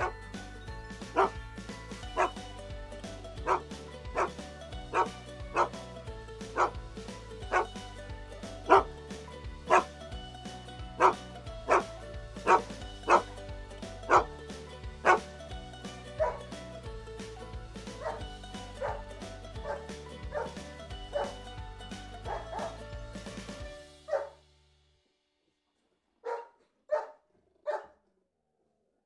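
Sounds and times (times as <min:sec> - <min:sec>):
dog barks music: 0:00.0 - 0:00.2, 0:01.0 - 0:02.6, 0:03.4 - 0:05.8, 0:06.4 - 0:09.0, 0:09.6 - 0:10.0, 0:11.0 - 0:14.4, 0:15.0 - 0:15.3, 0:16.1 - 0:16.6, 0:17.8 - 0:24.4, 0:26.2 - 0:27.9.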